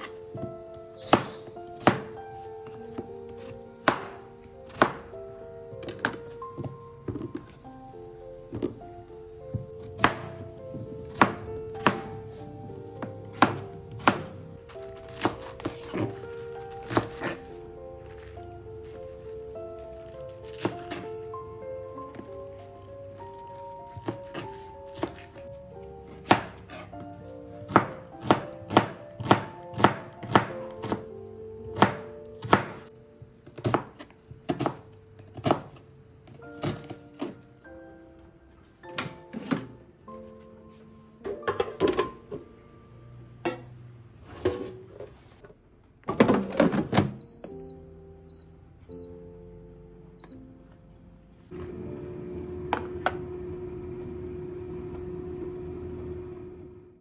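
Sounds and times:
knife chopping on plastic board: 0:00.0 - 0:05.1, 0:05.8 - 0:07.6, 0:09.5 - 0:12.3, 0:13.0 - 0:17.5, 0:20.4 - 0:21.3, 0:23.9 - 0:25.4, 0:26.1 - 0:26.9, 0:27.6 - 0:35.8
soft music: 0:00.0 - 0:57.0.

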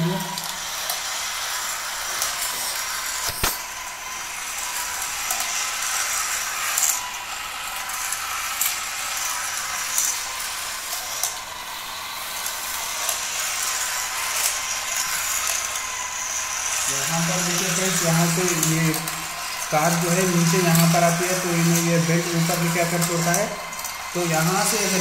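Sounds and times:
toy track motor whirring: 0:00.0 - 0:25.0
plastic toy cars rattling: 0:00.2 - 0:11.5, 0:12.2 - 0:25.0
sharp click: 0:03.2 - 0:03.6.

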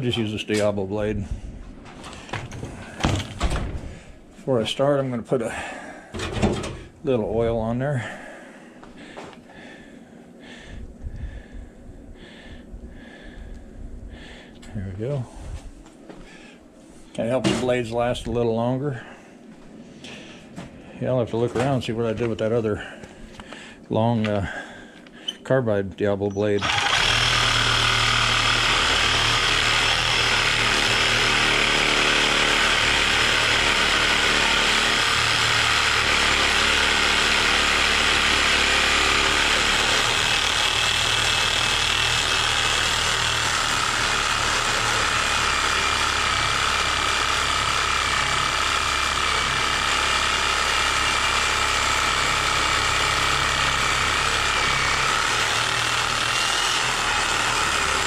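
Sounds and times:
reciprocating saw cutting steel: 0:26.6 - 0:58.0.

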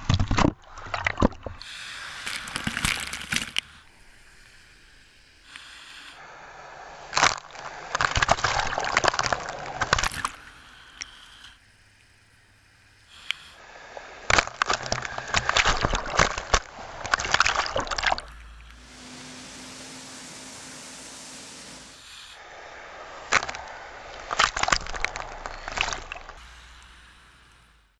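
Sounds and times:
rush of spray: 0:01.6 - 0:11.2, 0:13.1 - 0:27.3
water splashing against camera: 0:14.3 - 0:22.1
low hum: 0:17.8 - 0:24.4.

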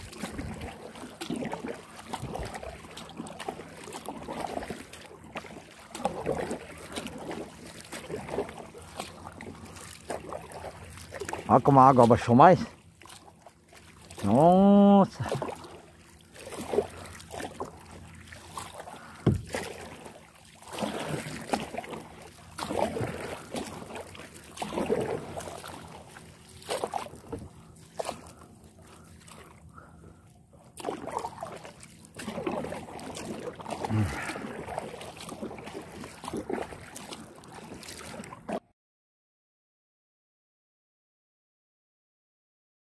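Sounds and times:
paddle splashing in water: 0:00.0 - 0:38.7.

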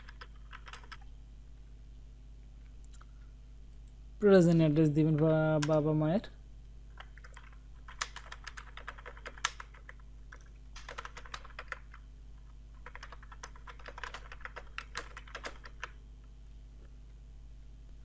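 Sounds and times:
typing on a computer keyboard: 0:00.0 - 0:01.0, 0:07.0 - 0:12.0, 0:12.8 - 0:16.0.

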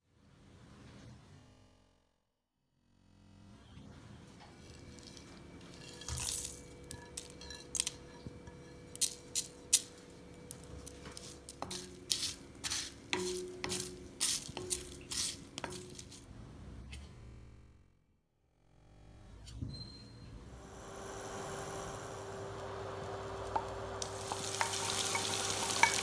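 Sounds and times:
spices crackling in hot oil: 0:04.6 - 0:16.2, 0:20.6 - 0:26.0.

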